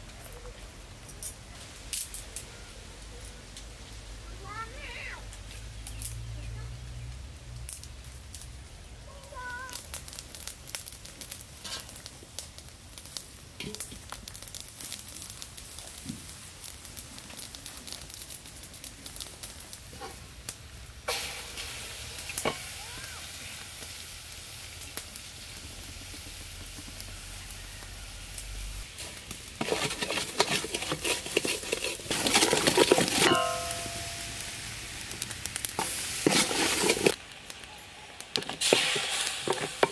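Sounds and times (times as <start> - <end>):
sauce sizzling: 20.7 - 39.9
wooden spoon scraping basin: 29.6 - 34.2, 35.8 - 37.2.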